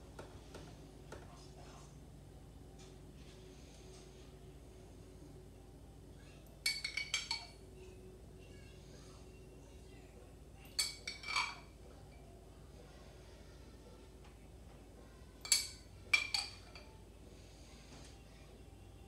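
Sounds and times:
metal spoon clinking on glass jar: 6.6 - 7.6, 10.8 - 11.6, 15.4 - 16.9.

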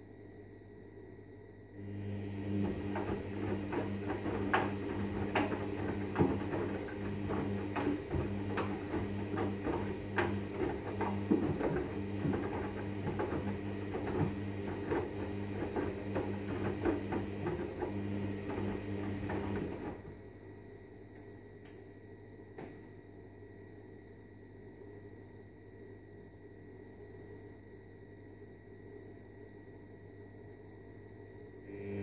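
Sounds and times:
washing machine motor humming: 1.8 - 21.0, 31.7 - 32.0
laundry knocking and splashing: 2.6 - 20.0.

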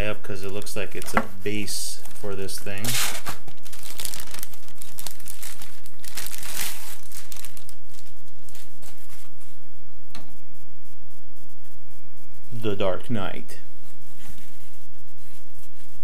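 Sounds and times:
plastic bag crinkling: 2.1 - 9.0.

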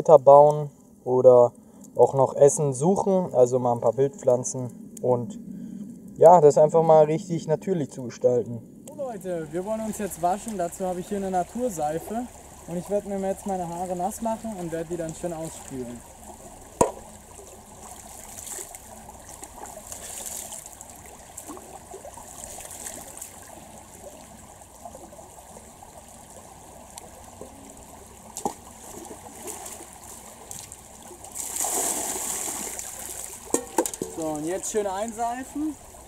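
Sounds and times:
stream running over stones: 6.2 - 36.0
sharp knocks: 16.8 - 17.0
water poured splashing: 28.4 - 35.2.

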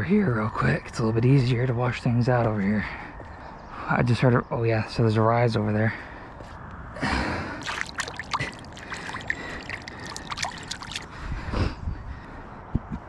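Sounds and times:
water splashing and sloshing: 7.6 - 11.2.

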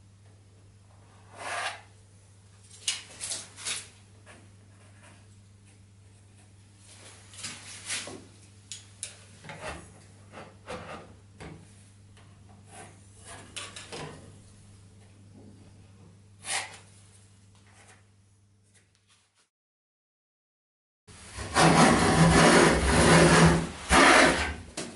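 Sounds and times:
folding rule rubbing on board: 1.3 - 1.9, 21.3 - 24.6
pencil scratching on wood: 21.4 - 24.5.

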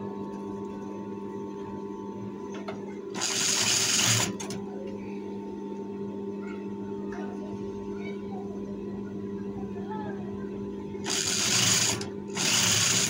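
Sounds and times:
steady electric hum: 0.0 - 13.0
sewing machine stitching: 3.2 - 4.5, 11.1 - 13.0.

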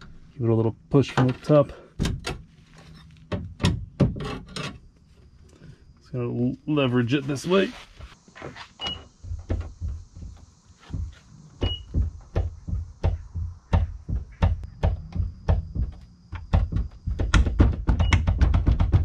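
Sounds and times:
trunk lid knocking in frame: 9.2 - 19.0.

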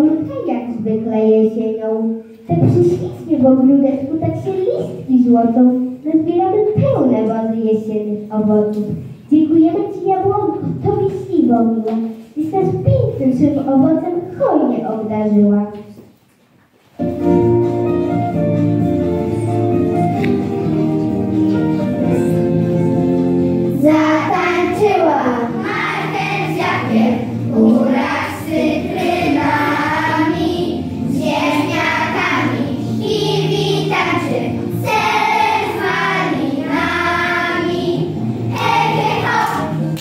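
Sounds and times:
instrumental backing music: 16.8 - 40.0
children singing in unison: 23.9 - 39.9.

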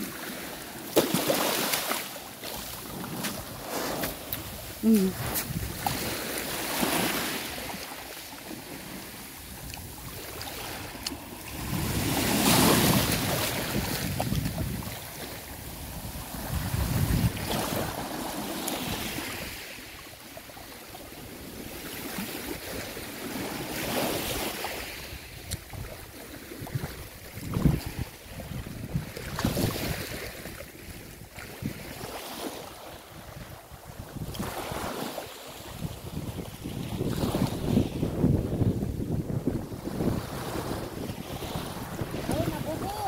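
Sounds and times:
small waves washing over gravel: 0.0 - 20.0.

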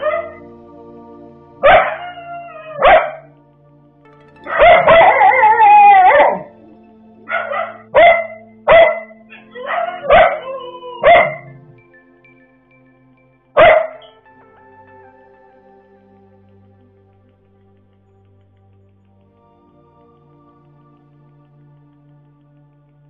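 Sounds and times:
dogs yelping and barking: 0.0 - 0.5, 1.6 - 3.3, 4.5 - 6.6, 7.3 - 11.8, 13.6 - 14.2.

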